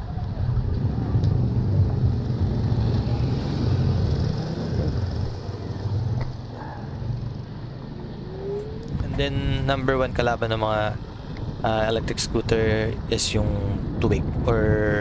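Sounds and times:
wind buffeting microphone: 0:00.0 - 0:06.4, 0:07.0 - 0:15.0
road rumble: 0:00.0 - 0:15.0.

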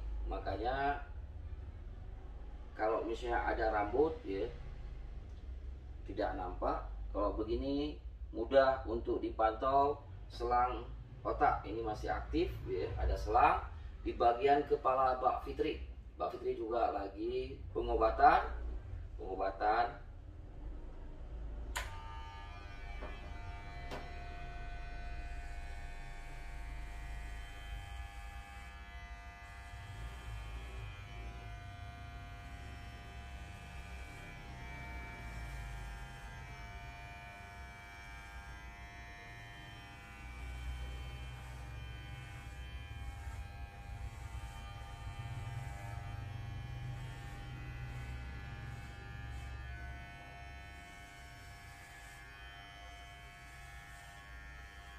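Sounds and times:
electric hair clippers buzzing: 0:21.6 - 0:54.9.

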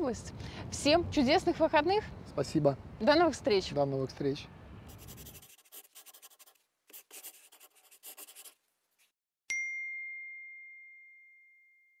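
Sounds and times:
pen scribbling on paper: 0:04.9 - 0:08.6
bright bell-like ding: 0:09.5 - 0:12.0.

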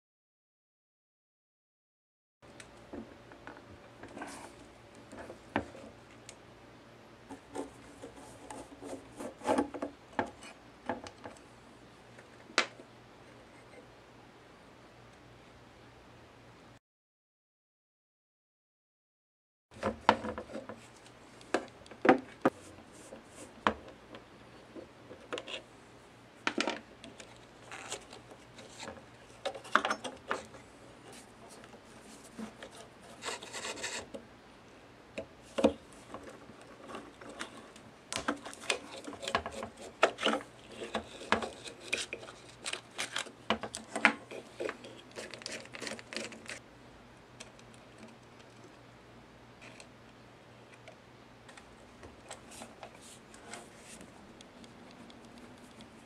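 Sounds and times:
rasping scrape: 0:32.0 - 0:34.1.

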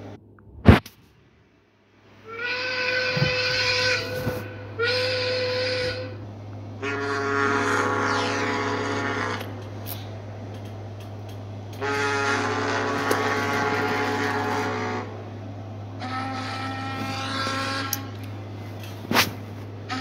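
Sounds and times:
ship's whistle blasts: 0:02.2 - 0:06.2, 0:06.8 - 0:09.4, 0:11.8 - 0:15.2, 0:16.0 - 0:18.1.

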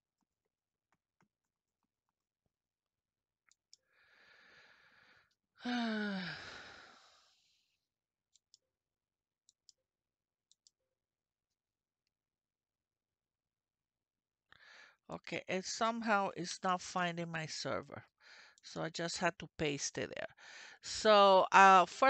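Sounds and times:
woman sighing: 0:05.6 - 0:07.2.

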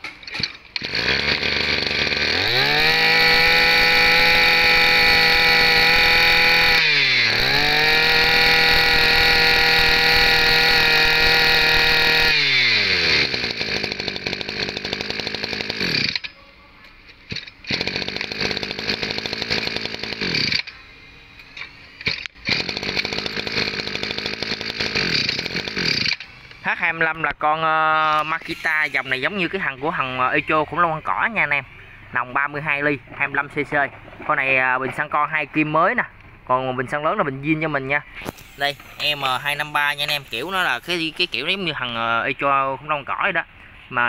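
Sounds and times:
brush cutter engine running: 0:00.8 - 0:16.3, 0:17.4 - 0:20.7, 0:22.0 - 0:30.4, 0:38.2 - 0:42.4.

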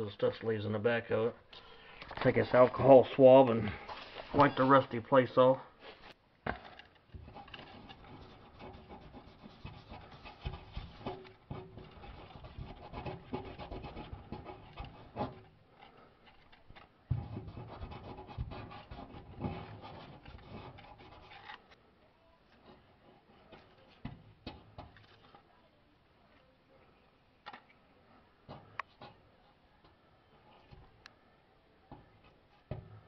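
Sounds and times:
swab rubbing on metal: 0:07.2 - 0:15.5, 0:17.2 - 0:21.7.

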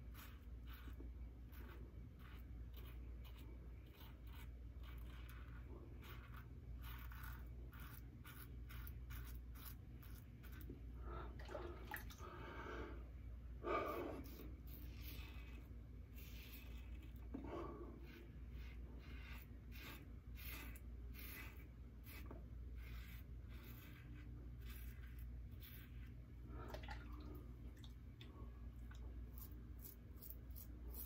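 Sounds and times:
razor scraping stubble: 0:00.0 - 0:10.8, 0:13.8 - 0:26.2, 0:29.2 - 0:31.0.

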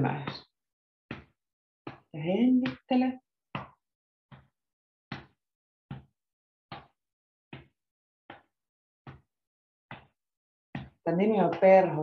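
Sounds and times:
hands patting chest: 0:03.6 - 0:04.5.

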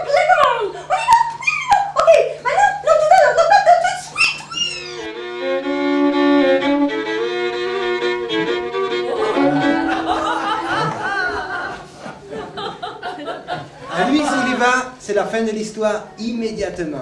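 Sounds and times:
fiddle sliding yelps: 0:03.9 - 0:10.6
fiddle long held notes: 0:04.7 - 0:11.1.

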